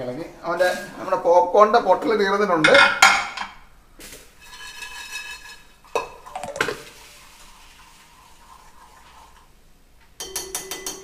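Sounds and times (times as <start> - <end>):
stirring syrup: 4.5 - 9.5
metal spoon clinking on pan: 10.2 - 11.0.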